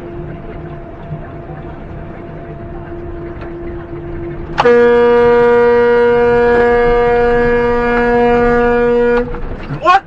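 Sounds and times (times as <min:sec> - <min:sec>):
truck air horn blast: 0:04.6 - 0:09.4.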